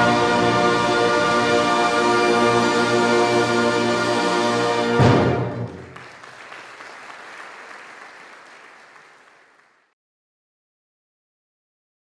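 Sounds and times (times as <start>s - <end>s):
brass band chord: 0.0s - 5.8s
audience applause: 5.5s - 10.0s.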